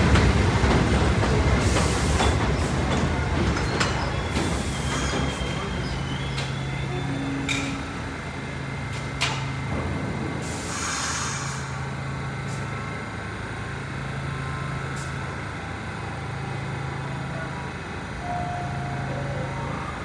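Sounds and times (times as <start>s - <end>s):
subway car humming: 0.0s - 20.0s
short hiss of air: 10.4s - 11.8s.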